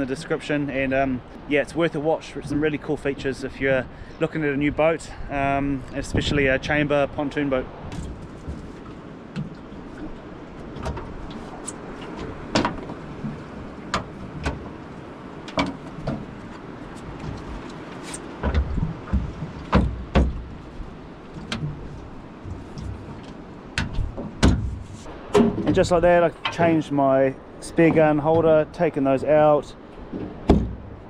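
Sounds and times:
clicks and knocks of plastic mounts: 15.5 - 16.3.

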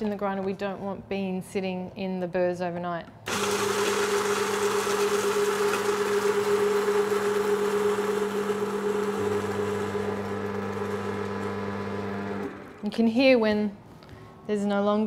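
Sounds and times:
electric coffee grinder running: 3.3 - 12.8.

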